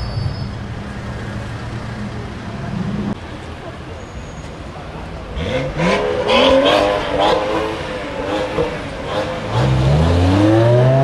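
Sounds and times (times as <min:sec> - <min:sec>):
car engine revving: 0:05.2 - 0:11.0.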